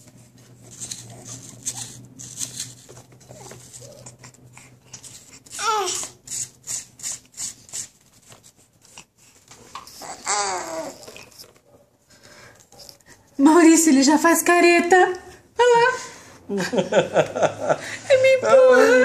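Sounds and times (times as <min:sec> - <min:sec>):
apple being scraped: 0:00.6 - 0:04.3, 0:05.0 - 0:09.1
baby babbling cry: 0:05.5 - 0:06.2, 0:10.0 - 0:11.3.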